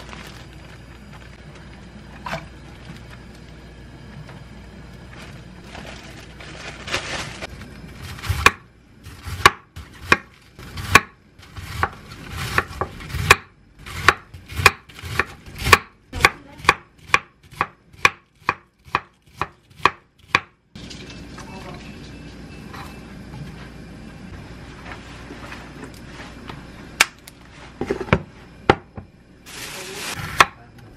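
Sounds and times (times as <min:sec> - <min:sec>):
knife chopping on wooden board: 0:08.3 - 0:08.6, 0:09.3 - 0:20.5.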